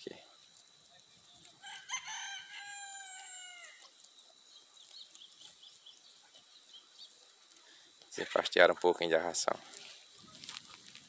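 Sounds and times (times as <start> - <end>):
rooster crowing: 1.6 - 3.9.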